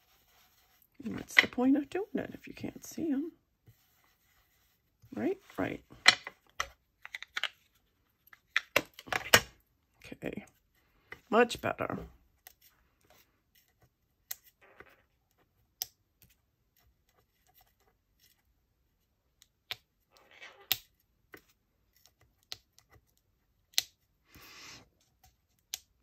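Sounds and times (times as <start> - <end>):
craft tools clicking and tapping: 5.9 - 7.6.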